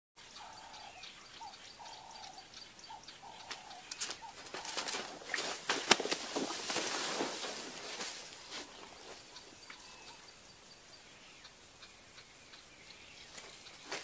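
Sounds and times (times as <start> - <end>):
bird calling: 0.2 - 14.0
branches snapping and crashing: 3.9 - 8.3.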